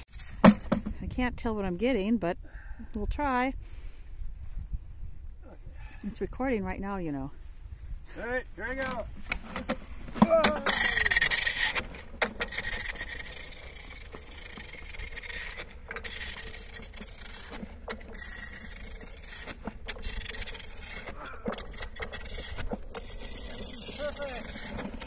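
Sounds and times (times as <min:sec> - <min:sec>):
skate runners scraping over ice: 0:08.2 - 0:25.0.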